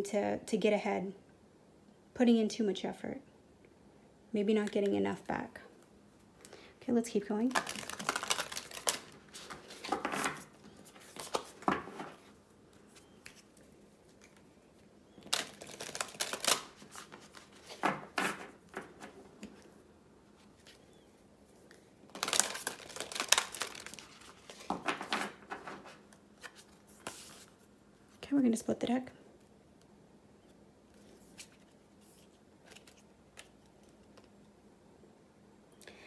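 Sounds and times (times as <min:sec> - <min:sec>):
cards being shuffled: 0:07.5 - 0:19.7, 0:21.6 - 0:27.6, 0:30.9 - 0:34.3.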